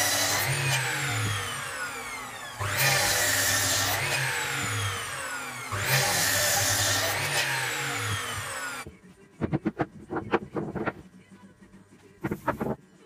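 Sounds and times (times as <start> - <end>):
mitre saw cutting wood: 0.0 - 8.9
saw motor whine spinning down: 0.0 - 8.9.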